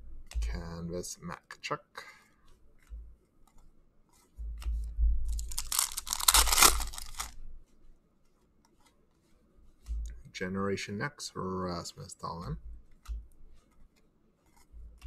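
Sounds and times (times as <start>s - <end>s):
wrapper tearing and crinkling: 5.3s - 7.4s.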